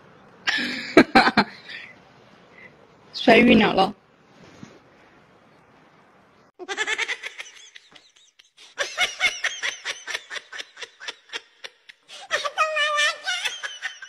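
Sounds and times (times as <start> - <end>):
person laughing: 0.5 - 1.6, 6.6 - 14.0.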